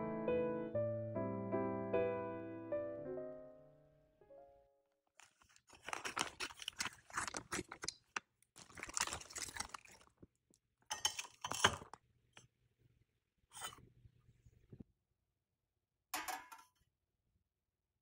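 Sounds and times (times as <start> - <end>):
rustling and scraping: 5.2 - 7.9.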